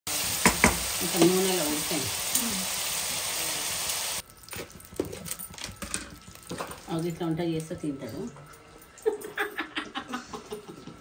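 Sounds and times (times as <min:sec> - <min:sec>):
chicken sizzling in hot oil: 0:00.0 - 0:05.2.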